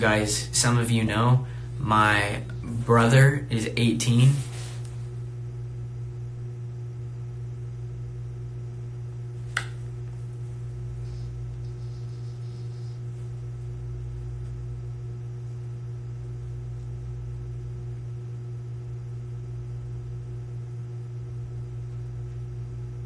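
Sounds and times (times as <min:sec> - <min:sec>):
low room hum: 0:00.0 - 0:23.0.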